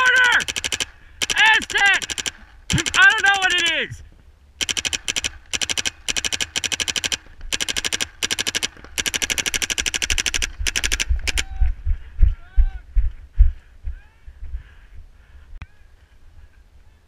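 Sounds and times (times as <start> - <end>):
paintball marker firing: 4.6 - 11.5.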